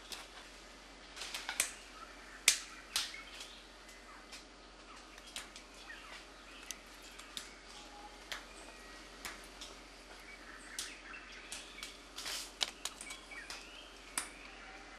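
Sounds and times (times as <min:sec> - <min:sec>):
faint bird chirps: 0:01.7 - 0:09.2, 0:10.1 - 0:14.9
forest hiss: 0:05.4 - 0:13.9.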